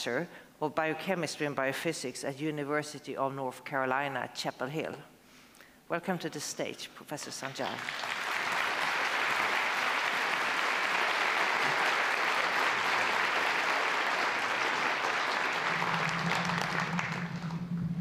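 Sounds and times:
audience applauding: 7.5 - 18.0
low steady hum: 14.4 - 18.0.

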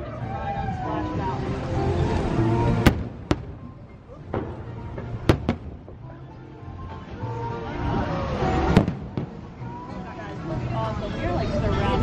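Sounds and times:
music playing: 0.0 - 12.0
fireworks bangs: 2.0 - 6.0, 8.6 - 9.8.

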